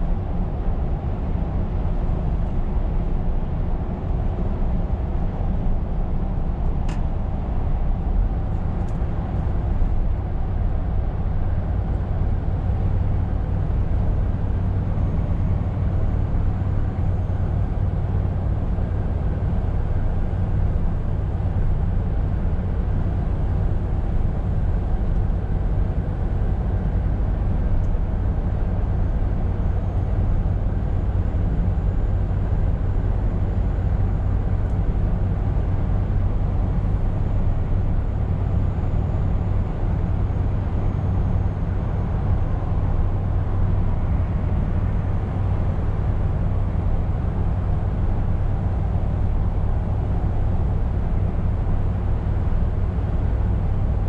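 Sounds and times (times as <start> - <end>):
road and tyre noise: 0.0 - 54.0
truck engine rumble: 0.0 - 54.0.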